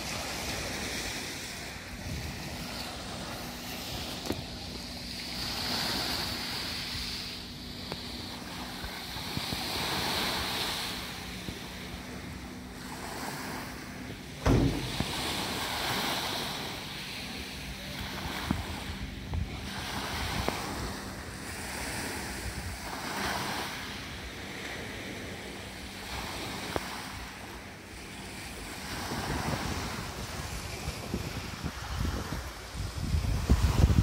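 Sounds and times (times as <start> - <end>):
wind on microphone: 0.0 - 25.1, 28.2 - 34.0
surf washing on shore: 0.0 - 34.0
loud thump: 14.4 - 15.4.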